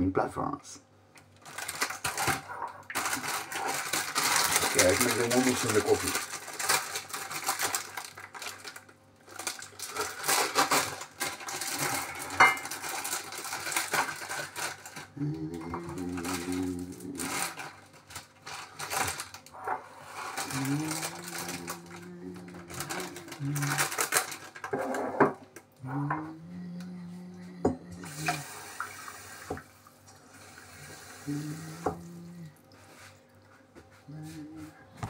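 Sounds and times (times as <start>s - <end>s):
low steady hum: 0.0s - 35.0s
pots and utensils clinking: 11.4s - 14.9s
tap running into a sink: 28.1s - 29.7s.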